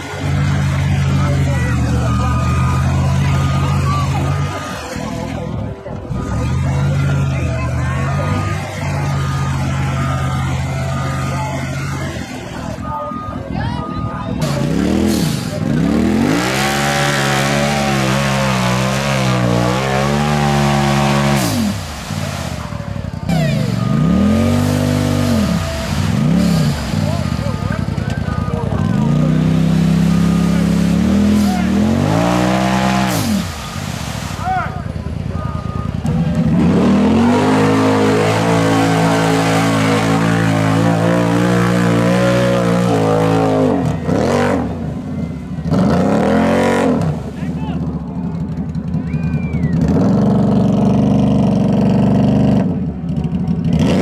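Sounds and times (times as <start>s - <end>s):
engine revving high: 14.4s - 48.0s, 53.6s - 54.0s.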